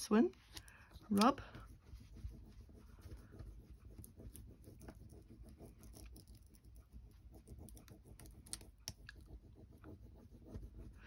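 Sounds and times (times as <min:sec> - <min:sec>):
stick scratching on paper: 0:00.9 - 0:11.0.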